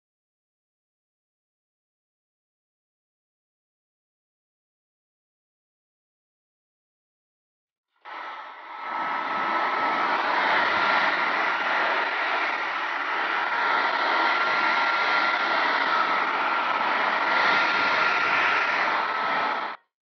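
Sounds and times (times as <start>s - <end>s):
hair dryer blowing: 8.1s - 19.9s.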